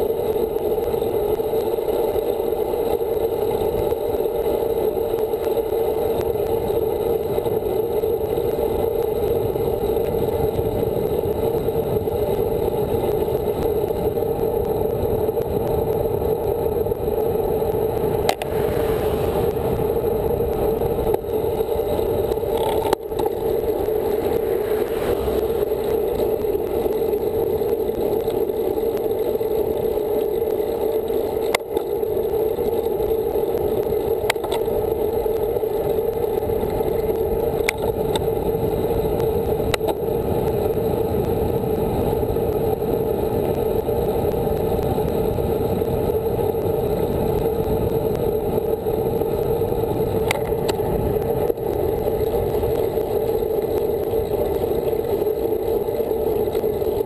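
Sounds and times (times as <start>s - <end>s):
wind and road noise: 0.0s - 57.0s
bike clicks and knocks: 21.8s - 23.5s, 34.2s - 34.7s.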